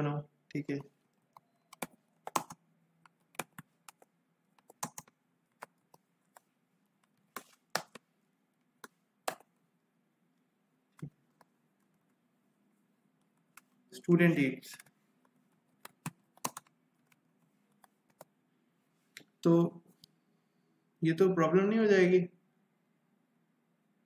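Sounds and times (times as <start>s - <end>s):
keyboard typing: 0.6s - 8.0s, 8.8s - 9.6s, 14.7s - 18.3s.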